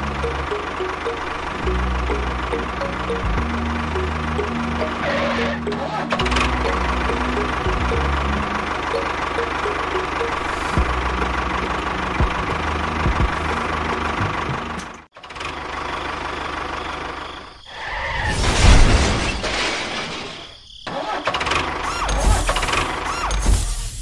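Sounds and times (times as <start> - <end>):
tractor motor running: 0.0 - 17.2.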